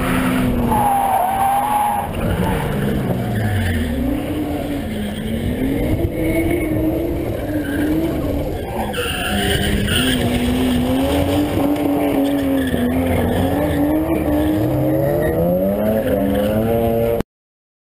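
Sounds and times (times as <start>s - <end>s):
tyre squeal: 0.0s - 6.8s, 7.4s - 11.4s
car engine revving: 0.0s - 17.2s.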